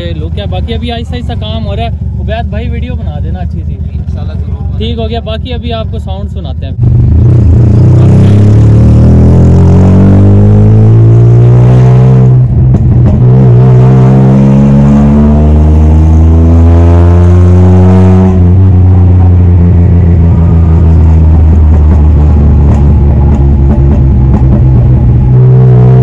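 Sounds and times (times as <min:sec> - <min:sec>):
car engine accelerating: 0:00.0 - 0:26.0
exhaust crackling pops: 0:12.4 - 0:13.3, 0:18.3 - 0:25.4.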